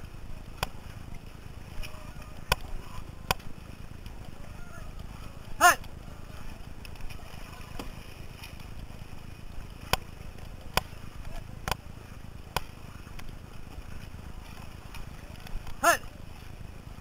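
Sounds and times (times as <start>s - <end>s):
water and wind rushing: 0.0s - 17.0s
paddle knocking on canoe: 0.2s - 17.0s.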